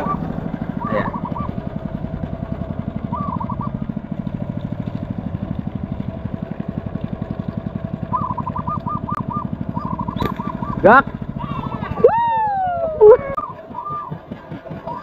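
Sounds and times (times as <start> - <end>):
small boat engine putter: 0.0 - 15.0
bird chirping: 8.1 - 10.9.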